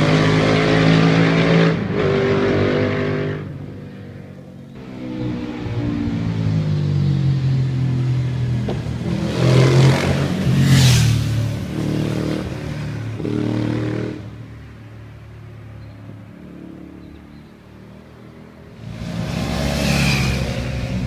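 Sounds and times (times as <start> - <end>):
motorcycle engine revving past: 18.8 - 21.0.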